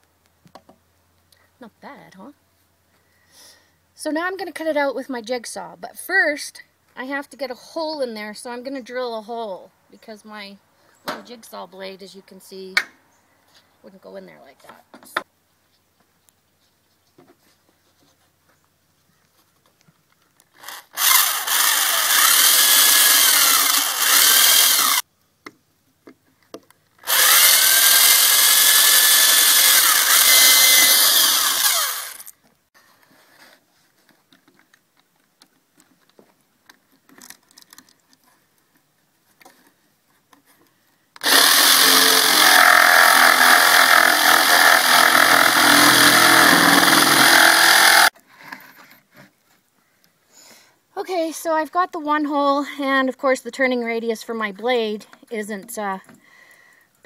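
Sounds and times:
electric drill boring wood: 20.6s - 25.0s, 27.0s - 32.3s, 41.2s - 48.1s
jigsaw running: 20.6s - 25.0s, 27.0s - 32.3s, 41.2s - 48.1s.

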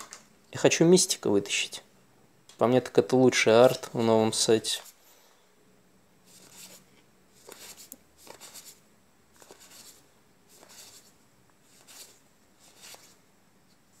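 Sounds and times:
cards swishing: 7.4s - 8.8s, 9.4s - 11.1s, 11.7s - 13.2s.

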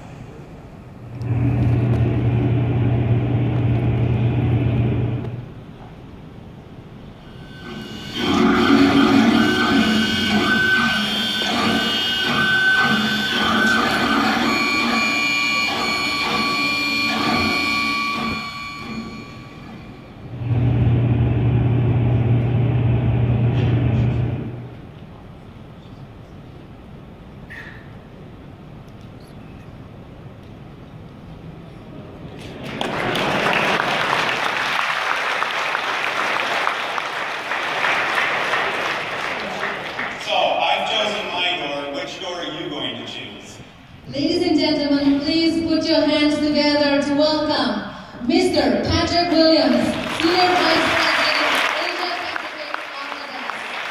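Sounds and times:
deep steady drone: 0.0s - 5.8s, 6.4s - 24.9s
steady electronic tones: 6.6s - 24.7s
machine-like whirring: 7.1s - 24.7s
large audience applauding: 32.4s - 40.8s, 49.6s - 53.9s.

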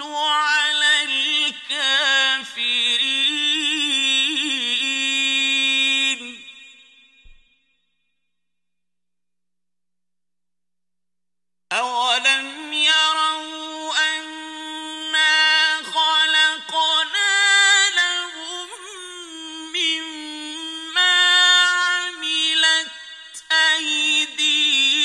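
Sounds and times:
man reciting in melodic chant: 0.0s - 6.6s, 11.7s - 25.0s.

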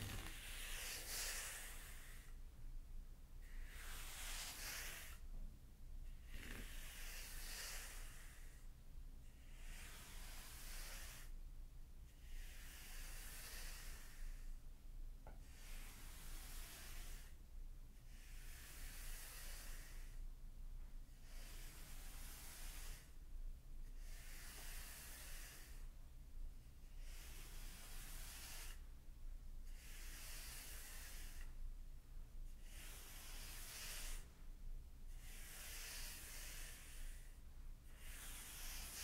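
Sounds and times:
rake hissing through sand: 0.0s - 2.3s, 3.4s - 5.2s, 6.4s - 8.5s, 9.6s - 11.3s, 21.4s - 23.1s, 27.1s - 28.8s, 32.6s - 34.3s, 35.2s - 37.3s, 38.0s - 39.0s.

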